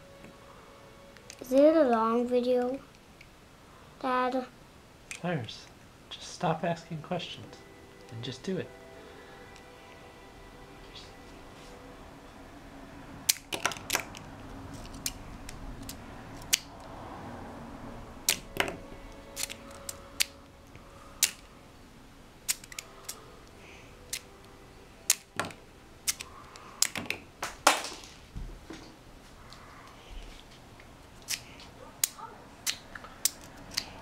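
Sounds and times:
plastic toys clicking and clattering: 13.3 - 16.6, 19.4 - 20.3.

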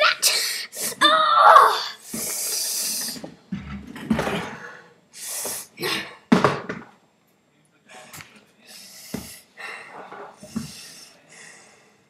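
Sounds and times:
breathy hiss: 1.8 - 3.2, 5.1 - 5.8, 8.0 - 12.0.

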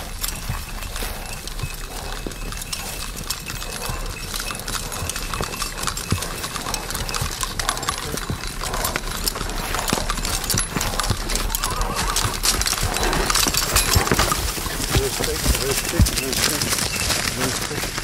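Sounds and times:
heavy hooves plodding: 0.0 - 18.0
plow scraping through soil: 7.6 - 18.0.

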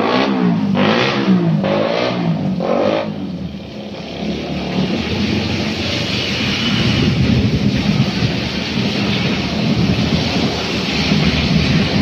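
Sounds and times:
rain hiss: 4.8 - 12.0
tyre hiss on wet asphalt: 4.8 - 12.0.

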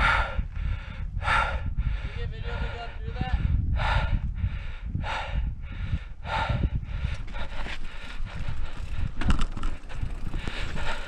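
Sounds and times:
rider breathing hard: 0.0 - 11.0
wind rumbling on microphone: 0.0 - 11.0
bike tyre and frame rattle: 6.4 - 11.0.

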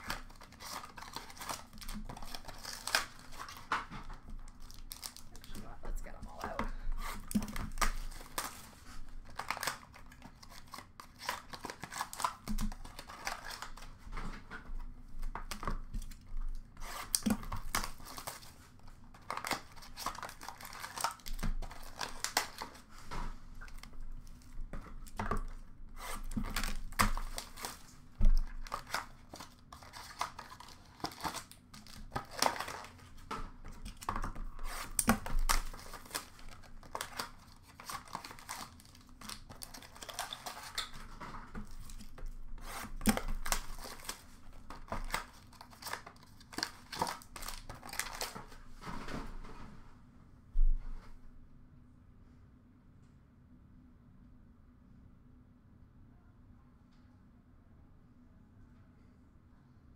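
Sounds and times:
foil wrappers tearing and crinkling: 0.0 - 14.0, 15.2 - 48.6.

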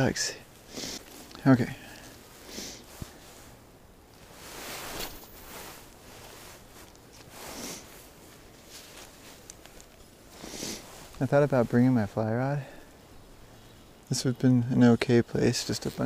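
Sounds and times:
clothing handling noise: 0.0 - 12.2.

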